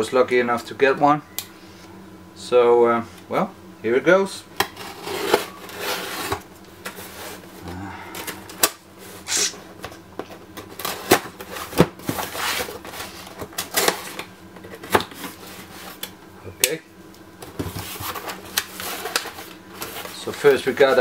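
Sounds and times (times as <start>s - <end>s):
knife slitting packing tape: 9.3s - 9.6s.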